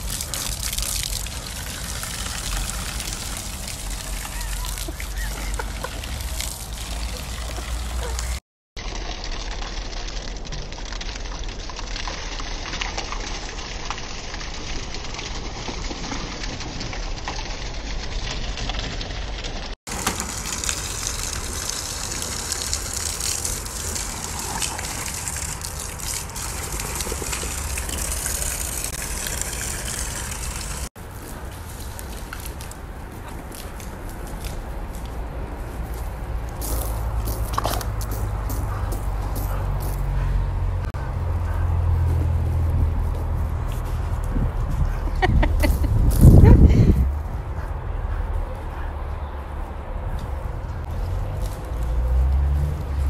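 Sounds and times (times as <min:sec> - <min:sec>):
rushing gushing water: 0:00.0 - 0:34.6.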